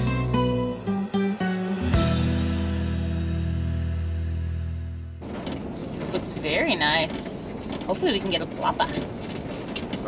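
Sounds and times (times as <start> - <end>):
plucked guitar music: 0.0 - 5.2.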